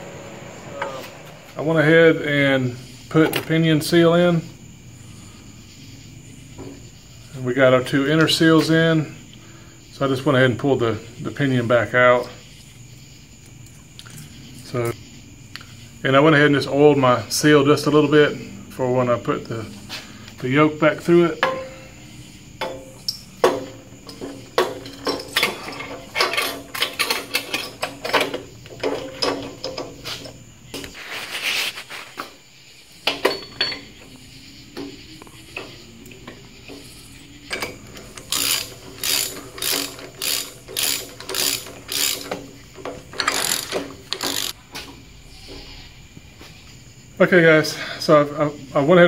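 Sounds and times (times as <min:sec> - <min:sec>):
ratchet wrench clicking: 0:37.6 - 0:42.4, 0:43.1 - 0:44.6.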